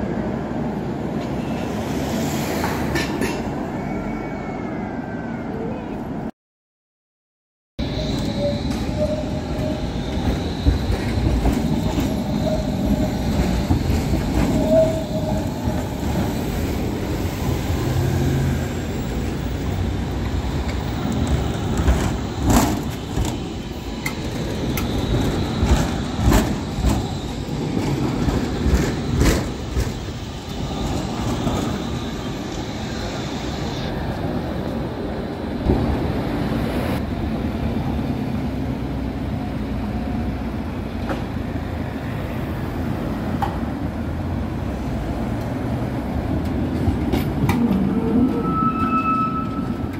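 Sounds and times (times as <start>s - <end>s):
tram wheels rumbling on rail: 0.0s - 6.3s, 7.8s - 49.9s
wheels clacking over track joints: 20.0s - 31.8s.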